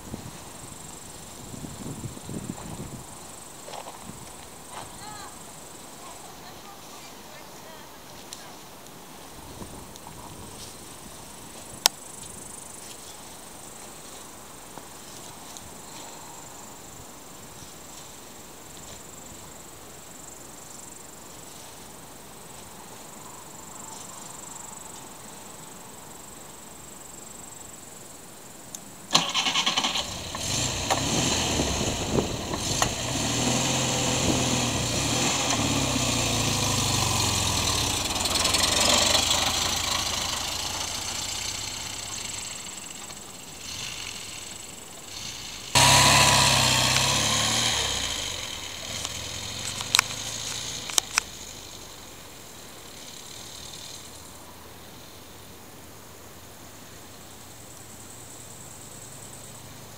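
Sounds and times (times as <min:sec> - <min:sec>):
outdoor background noise: 0:00.0 - 0:59.9
car engine starting and revving: 0:29.1 - 0:54.3.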